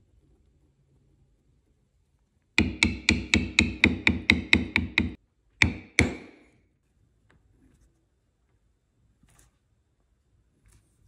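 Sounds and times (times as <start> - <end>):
mallet tapping metal tool on leather: 2.6 - 6.4.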